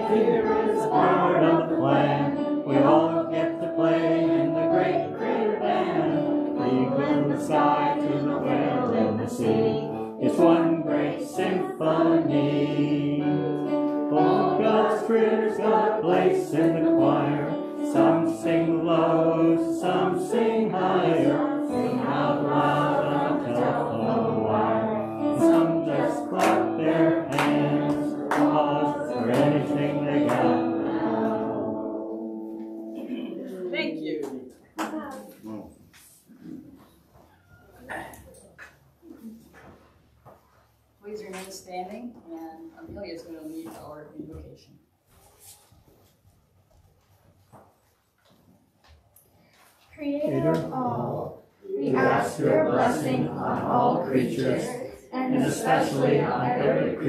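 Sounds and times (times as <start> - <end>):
group singing a hymn: 0.0 - 33.5, 50.2 - 57.0
instrumental accompaniment: 0.0 - 33.7.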